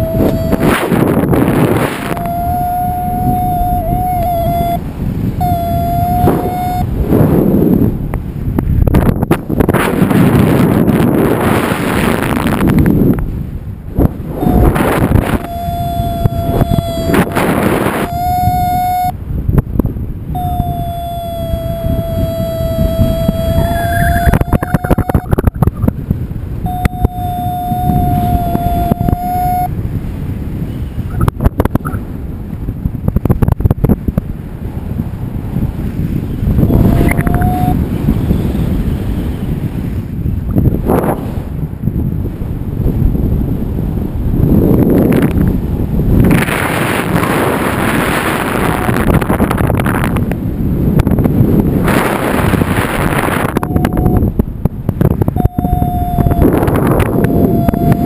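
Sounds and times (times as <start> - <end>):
variometer electronic tone: 0.0 - 7.2, 14.3 - 19.2, 20.3 - 25.9, 26.6 - 29.8, 36.3 - 39.6, 46.9 - 50.0, 51.8 - 54.4, 55.0 - 58.0
wind buffeting microphone: 0.0 - 58.0.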